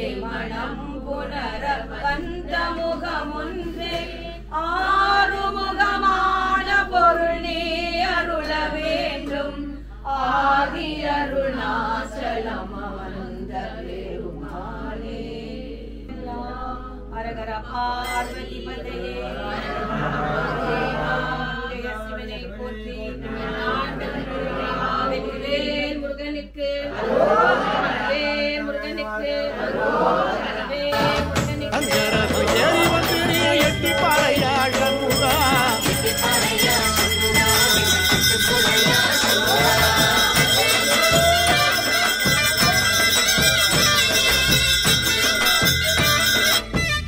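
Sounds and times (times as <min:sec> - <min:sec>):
voices chanting a hymn: 0:00.0 - 0:46.6.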